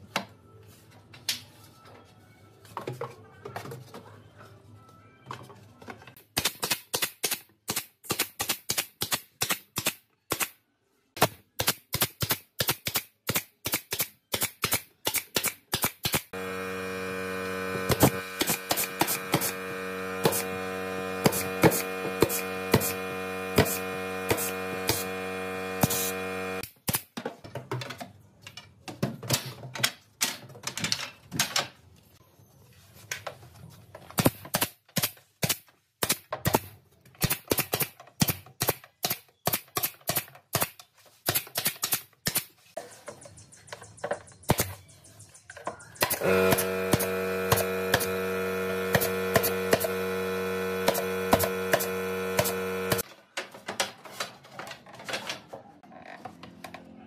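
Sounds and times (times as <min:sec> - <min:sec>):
nail gun shots into wood: 0:06.3 - 0:10.6, 0:11.2 - 0:16.3, 0:34.2 - 0:42.5
steady hum: 0:16.4 - 0:26.6, 0:46.2 - 0:53.0.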